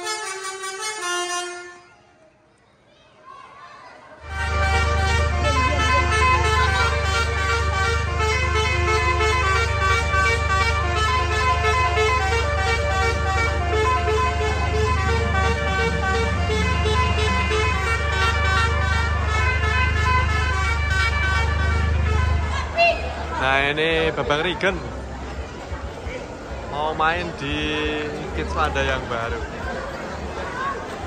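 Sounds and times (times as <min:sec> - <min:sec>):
bus horn playing a tune: 0:00.0 - 0:02.2, 0:04.2 - 0:24.5.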